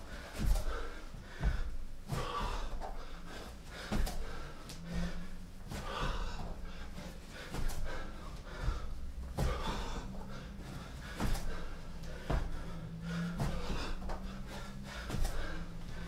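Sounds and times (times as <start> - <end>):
man breathing hard: 0.0 - 16.0
thuds on exercise mat: 0.3 - 3.0, 3.9 - 4.9, 8.6 - 10.2, 11.1 - 12.7, 13.3 - 14.3, 15.0 - 16.0.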